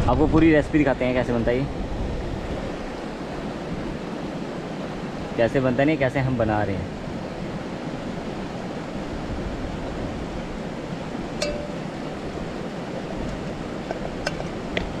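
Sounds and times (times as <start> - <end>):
river flowing over rocks: 9.9 - 15.0.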